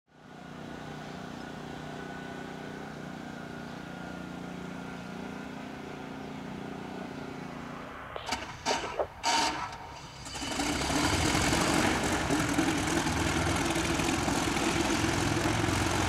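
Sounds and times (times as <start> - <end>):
small petrol engine running: 8.6 - 16.0.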